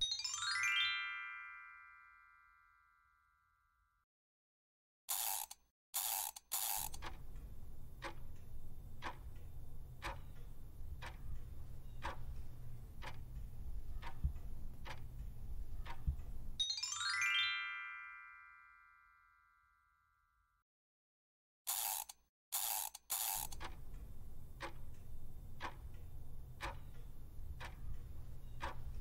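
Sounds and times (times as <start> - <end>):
rising chime: 0.0 - 3.2, 16.6 - 20.0
clock ticking: 6.0 - 16.6, 22.6 - 29.0.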